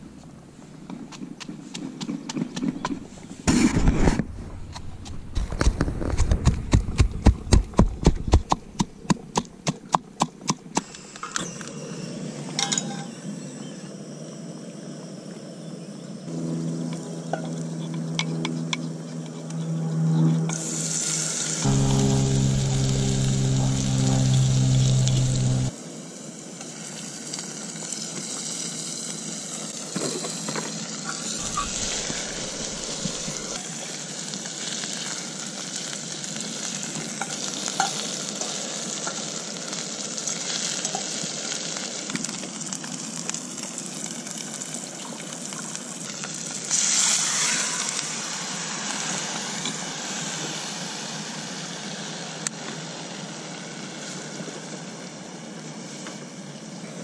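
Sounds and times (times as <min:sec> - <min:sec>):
low steady hum: 0:11.0 - 0:25.7, 0:31.4 - 0:33.6
food sizzling in a pan: 0:20.6 - 0:55.1.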